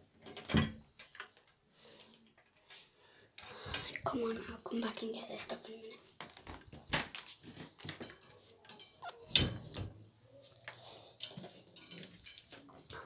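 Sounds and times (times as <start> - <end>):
knocks clatter and rubbing: 6.0 - 13.0.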